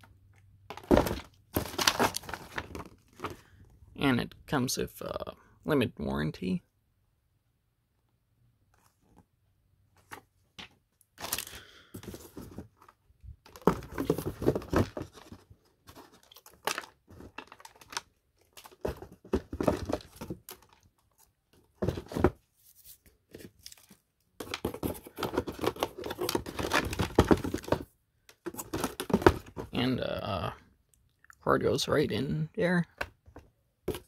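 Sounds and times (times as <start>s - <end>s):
packaging rustling: 0.7s - 3.5s, 11.2s - 21.2s, 21.8s - 29.7s.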